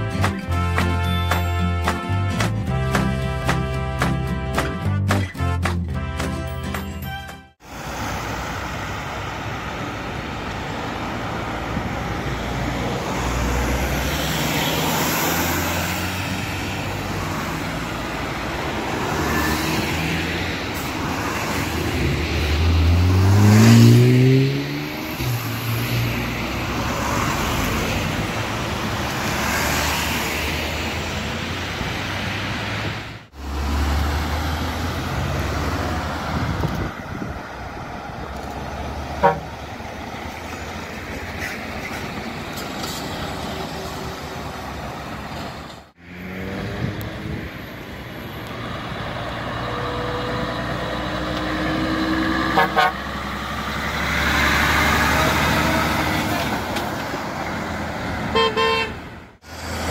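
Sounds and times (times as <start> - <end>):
truck horn toot: 0.0 - 7.6, 39.2 - 39.6, 52.4 - 53.1, 58.3 - 59.0
trucks driving past: 0.0 - 59.9.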